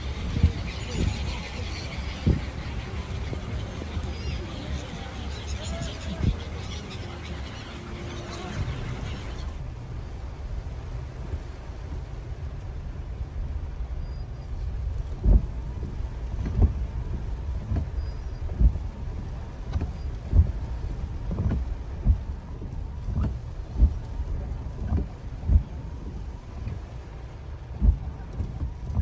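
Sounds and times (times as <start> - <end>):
windscreen wipers thumping: 0.0 - 7.4, 14.7 - 29.0
rain on car: 0.0 - 29.0.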